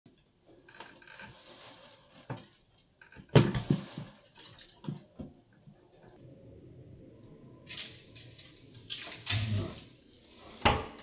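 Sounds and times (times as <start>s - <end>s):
plastic bag rustling: 0.5s - 6.2s
droppings pattering into bag: 0.9s - 6.1s.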